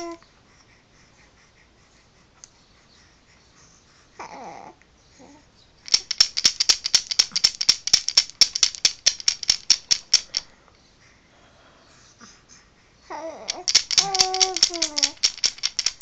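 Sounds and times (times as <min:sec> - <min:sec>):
wooden rattle clacking: 0:05.9 - 0:10.5, 0:13.5 - 0:16.0.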